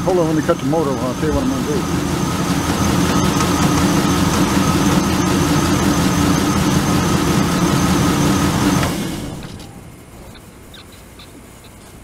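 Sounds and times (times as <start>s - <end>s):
engine idling: 0.0s - 12.0s
engine lifter tapping: 2.6s - 6.5s.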